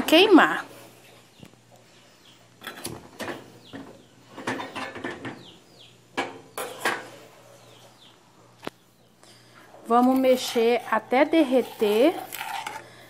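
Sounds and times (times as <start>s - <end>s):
metal spoon scraping a pot: 6.6s - 7.8s, 9.8s - 13.0s.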